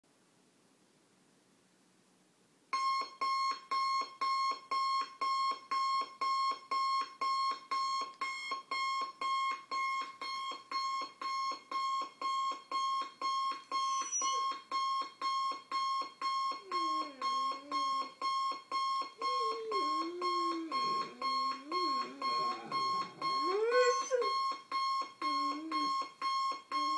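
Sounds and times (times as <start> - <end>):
alarm clock beeping: 2.8 - 26.9
dog whining: 13.7 - 14.6, 16.3 - 26.1.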